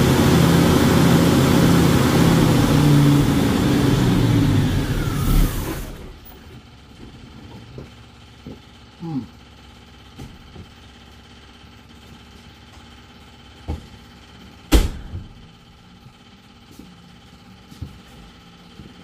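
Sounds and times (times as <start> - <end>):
loud clunk: 14.7 - 15.4.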